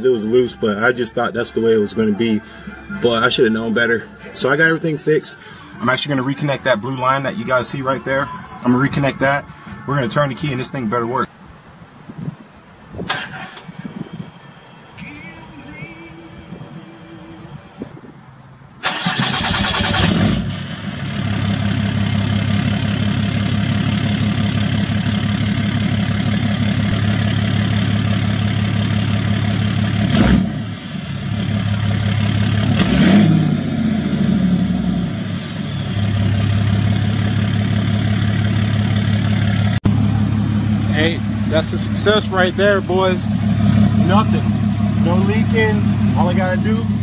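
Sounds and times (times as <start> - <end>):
diesel engine cranking and idling: 0.0 - 11.2, 13.0 - 18.0, 18.7 - 47.0.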